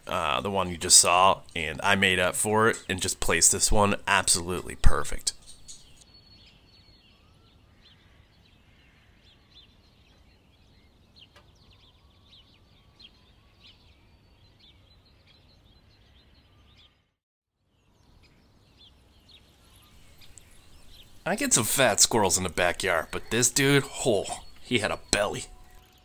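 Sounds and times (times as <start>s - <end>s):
faint small birds chirping: 0.0s - 26.0s
quiet outdoor background noise: 0.0s - 26.0s.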